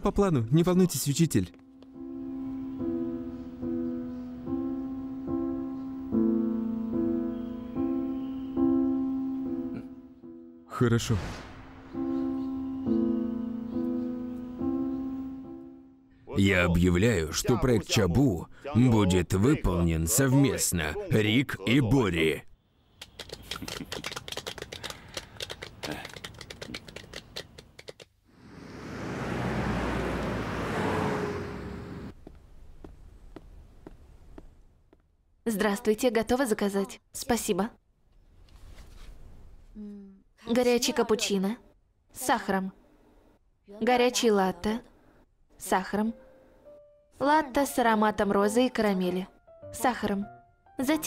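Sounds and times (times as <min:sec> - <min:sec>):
slow piano music: 0:01.5 - 0:10.8, 0:11.7 - 0:16.2, 0:46.1 - 0:51.0
small group applauding: 0:23.0 - 0:28.1
city traffic rumble: 0:23.0 - 0:34.7.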